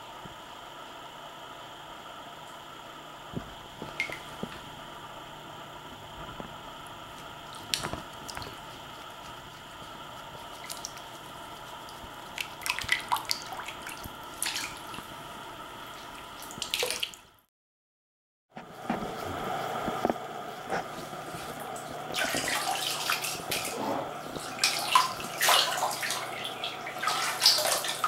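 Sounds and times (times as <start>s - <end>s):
bathwater splashes and drips: 3.8s - 4.6s, 7.2s - 15.2s, 15.8s - 17.4s, 21.2s - 28.0s.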